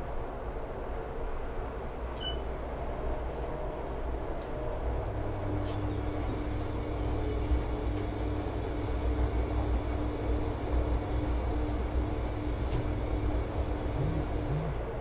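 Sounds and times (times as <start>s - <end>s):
motor hum: 4.9s - 15.0s.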